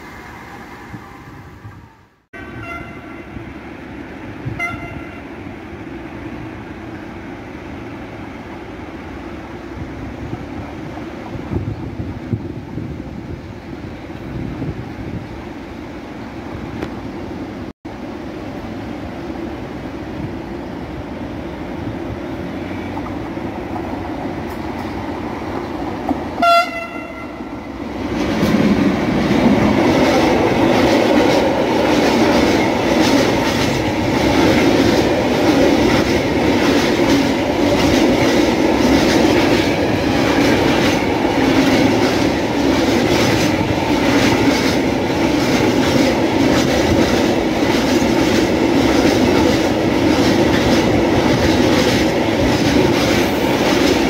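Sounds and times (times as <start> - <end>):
train horn blast: 2.4 - 3.4, 4.5 - 5.4, 26.4 - 27.7.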